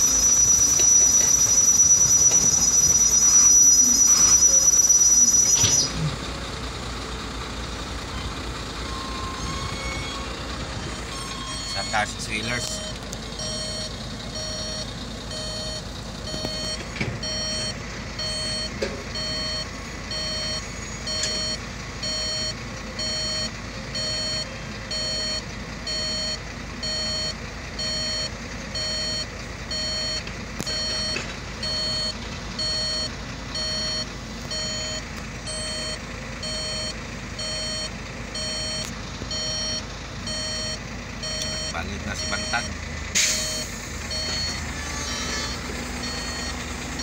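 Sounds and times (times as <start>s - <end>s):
reverse alarm beeping: 0.0s - 6.0s, 8.8s - 47.0s
diesel engine running: 0.0s - 47.0s.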